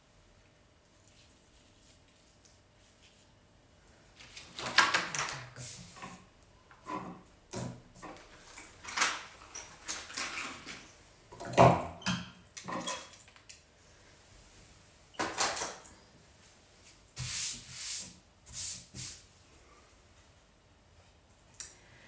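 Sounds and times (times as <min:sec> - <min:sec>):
hands rubbing on a tabletop: 0:01.0 - 0:03.3.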